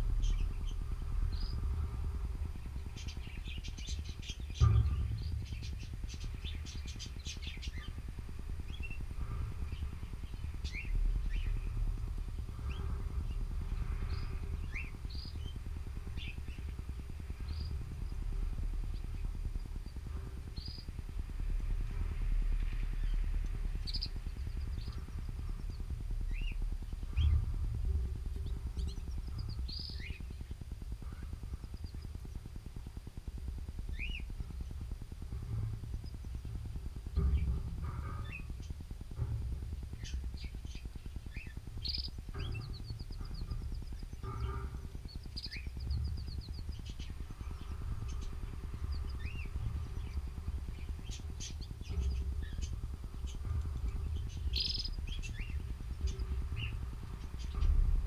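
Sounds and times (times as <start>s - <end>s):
low rumble: 0.0s - 58.0s
canaries chirping: 0.2s - 21.3s, 23.0s - 32.4s, 33.9s - 57.8s
sharp thump: 4.6s - 7.0s.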